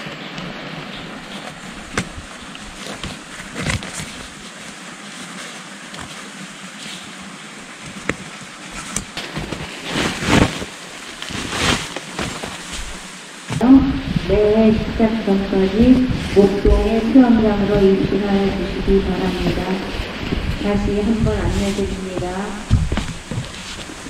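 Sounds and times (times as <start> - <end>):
mountain stream rushing: 10.3 - 24.0
sharp knocks: 20.3 - 23.9.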